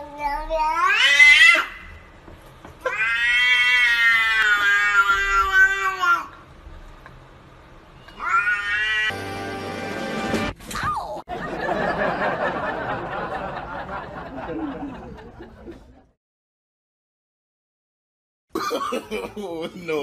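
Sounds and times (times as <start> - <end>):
cat yowling: 0.6 - 1.8, 2.8 - 6.3, 8.0 - 9.2.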